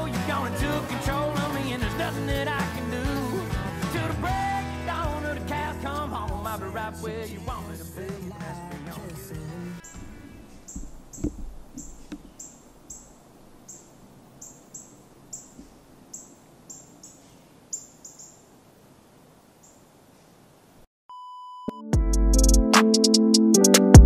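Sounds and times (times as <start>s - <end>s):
faint outdoor background: 0.0s - 21.5s
electronic music with beat: 21.8s - 24.0s.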